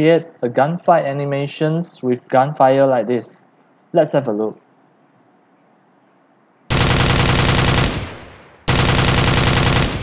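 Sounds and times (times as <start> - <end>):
automatic rifle bursts with echo: 6.7 - 10.0.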